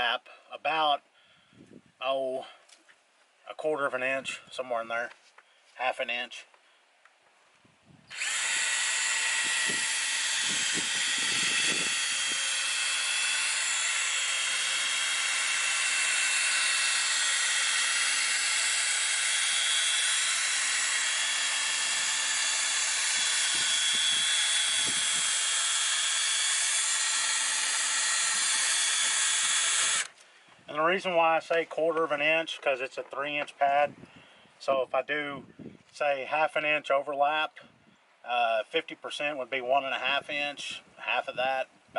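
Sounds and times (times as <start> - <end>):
cordless drill running: 8.1 - 30.2.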